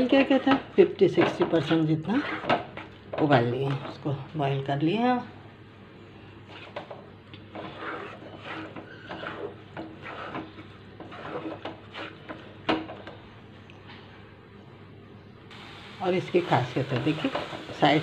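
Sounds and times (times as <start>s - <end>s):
spatula scraping and stirring paste: 0.0s - 4.2s, 6.0s - 14.2s.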